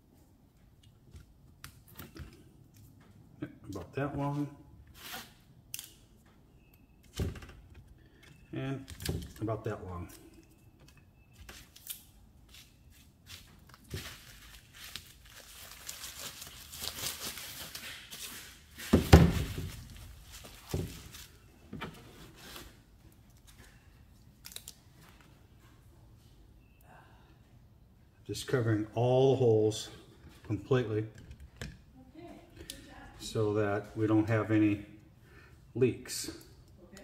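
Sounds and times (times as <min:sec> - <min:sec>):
sealing tape crinkling and tearing: 0:11.6 - 0:18.8, 0:24.4 - 0:24.8.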